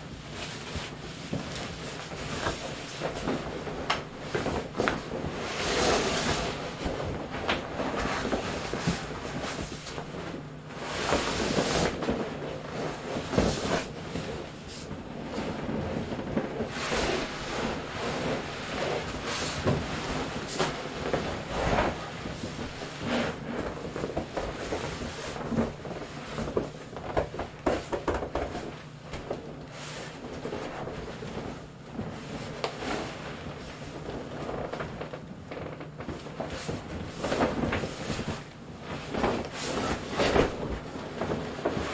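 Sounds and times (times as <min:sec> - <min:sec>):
vinyl rustling and rubbing: 0:00.0 - 0:41.9
plastic raincoat crinkling: 0:00.2 - 0:41.9.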